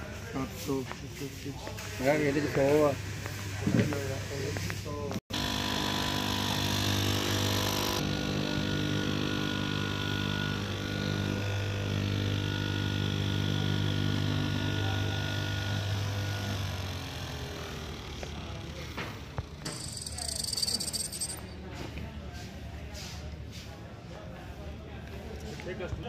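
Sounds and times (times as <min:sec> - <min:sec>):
fabric cutting machine humming: 0:05.3 - 0:18.7.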